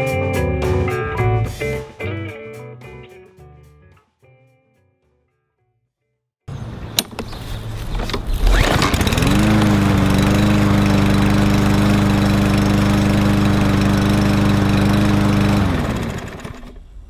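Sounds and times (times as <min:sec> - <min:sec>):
lawn mower engine running: 0:07.0 - 0:17.0.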